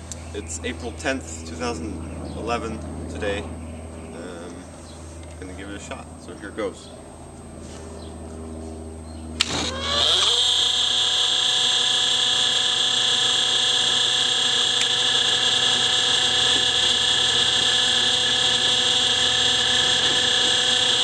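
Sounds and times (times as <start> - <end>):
high-pitched whine of leaf blower: 7.3 - 21.0
leaf blower click: 9.4 - 21.0.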